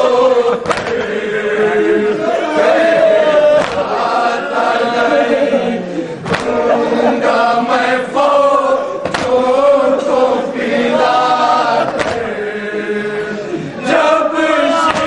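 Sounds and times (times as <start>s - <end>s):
men chanting a lament: 0.0s - 15.0s
sharp slaps: 0.6s - 1.1s, 3.6s - 4.0s, 6.2s - 6.6s, 9.0s - 9.5s, 11.9s - 12.4s.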